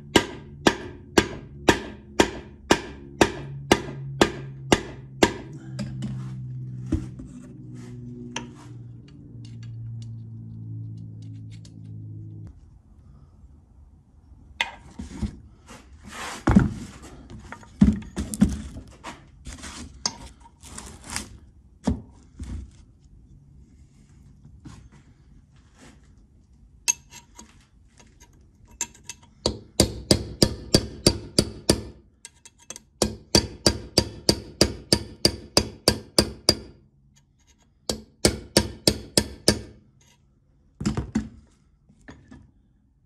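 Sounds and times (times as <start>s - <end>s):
mallet tapping steel shaft: 0.1s - 6.2s, 28.8s - 36.8s, 37.9s - 39.7s.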